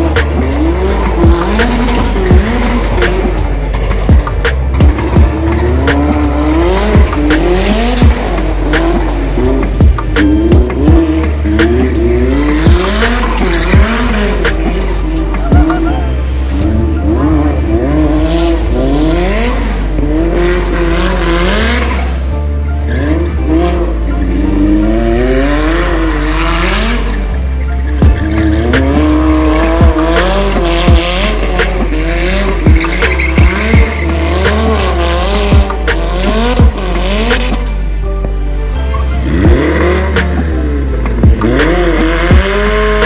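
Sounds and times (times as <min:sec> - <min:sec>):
car engine revving: 0:00.0 - 0:43.0
music with heavy bass: 0:00.0 - 0:43.0
tyre squeal: 0:32.4 - 0:35.1.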